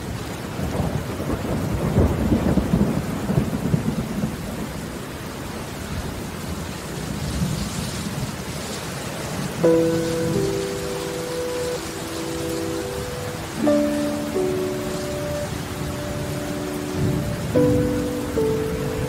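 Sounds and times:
steady rainfall: 0.0s - 19.0s
rolling thunder: 0.6s - 4.9s, 9.7s - 19.0s.

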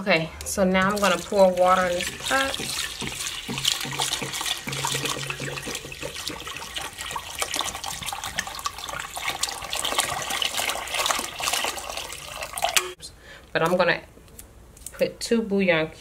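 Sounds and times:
faucet water pouring into pot: 0.8s - 13.0s.

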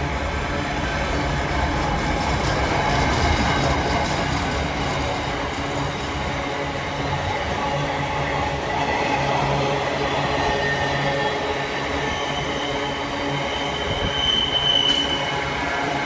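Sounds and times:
freight train wheels rumbling on rails: 0.0s - 16.0s
high wheel squeal: 10.5s - 15.6s.

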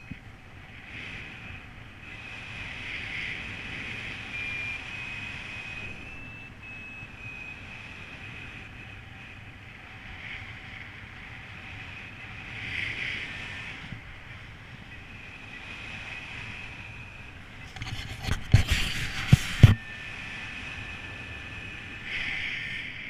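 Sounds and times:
wind noise on microphone: 0.0s - 23.0s
short high variometer tones: 3.0s - 9.8s, 14.6s - 23.0s.

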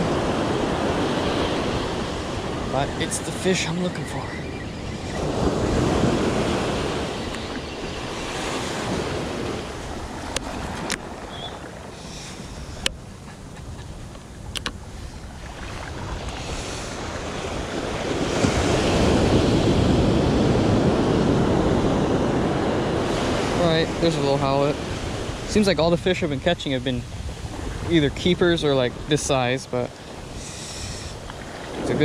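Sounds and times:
surf washing up beach: 0.0s - 32.0s
wind buffeting microphone: 0.0s - 32.0s.

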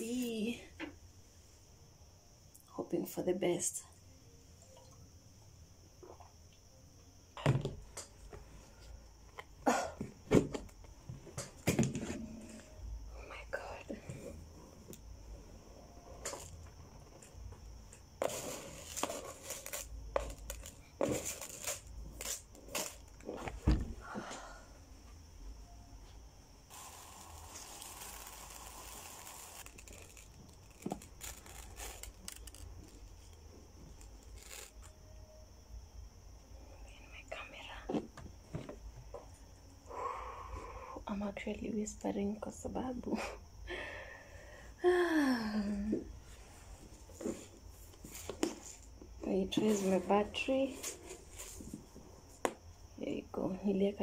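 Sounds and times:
rice rustling in plastic tub: 26.7s - 33.1s.

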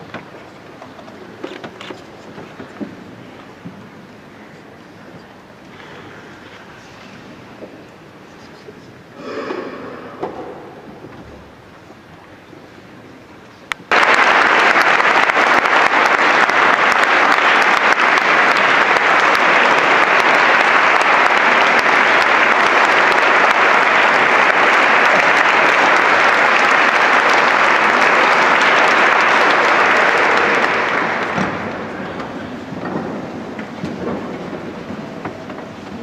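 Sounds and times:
audience applauding: 13.8s - 32.8s.

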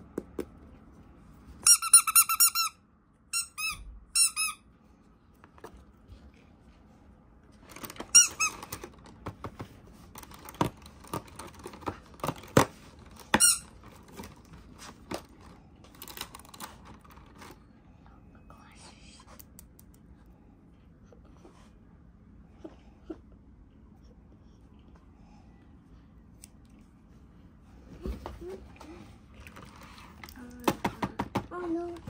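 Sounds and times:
squeaky toy squeaking: 1.6s - 4.6s, 8.1s - 8.7s, 13.3s - 13.7s.

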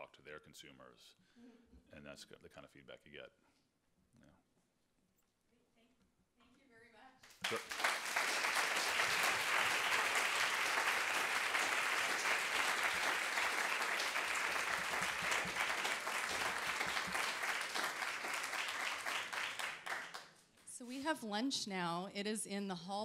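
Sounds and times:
audience clapping: 7.2s - 20.4s.

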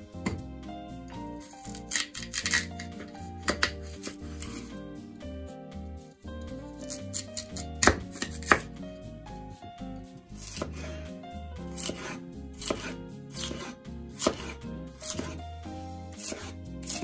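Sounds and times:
soft background music: 0.0s - 17.0s
knife slicing on cutting board: 1.4s - 4.8s, 6.8s - 8.7s, 10.4s - 11.0s, 11.7s - 15.4s, 16.1s - 17.0s.

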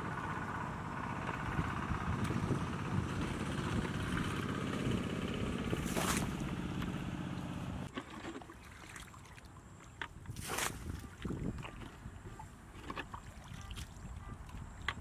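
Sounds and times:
motor droning: 0.0s - 7.9s
water splash: 5.7s - 6.5s, 10.4s - 11.9s
water sloshing and dripping: 7.9s - 15.0s.

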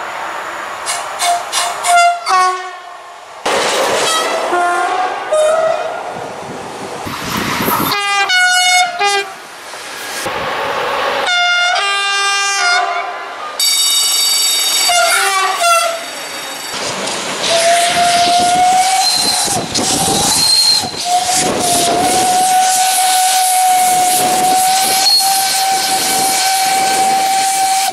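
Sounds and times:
trains rolling past: 0.0s - 27.9s
train horn blasts: 1.2s - 2.9s, 4.1s - 5.9s, 7.8s - 9.4s, 11.3s - 14.1s, 14.8s - 16.1s, 17.5s - 27.9s.

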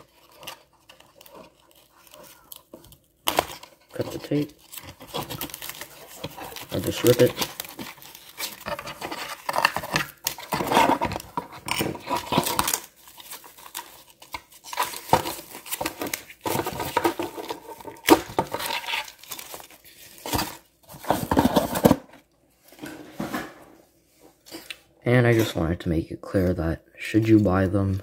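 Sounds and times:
packing wrap rustling: 0.0s - 22.1s.

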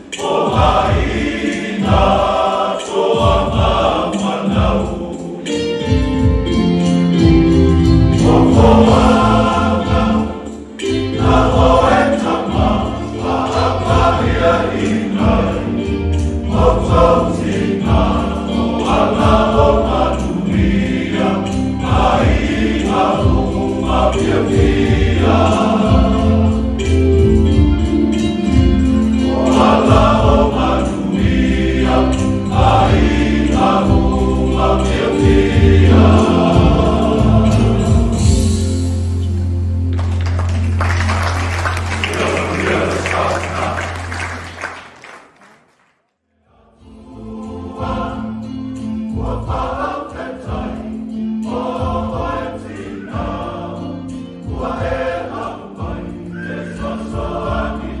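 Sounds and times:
instrumental accompaniment: 0.0s - 45.4s, 46.9s - 58.0s
choir singing gospel song: 0.0s - 45.7s, 46.4s - 58.0s.

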